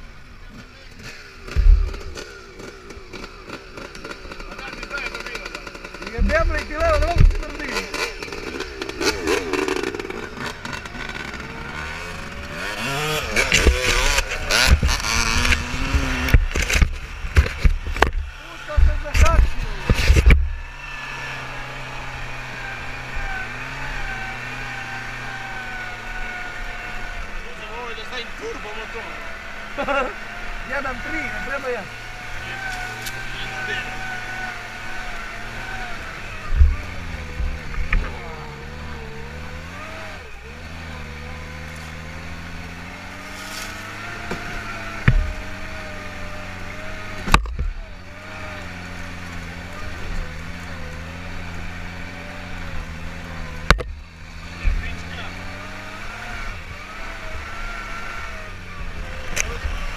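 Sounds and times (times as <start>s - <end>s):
buggy engine running: 0.0s - 59.9s
loud thumps: 1.4s - 4.6s, 5.3s - 20.6s, 43.2s - 45.6s, 47.2s - 47.8s.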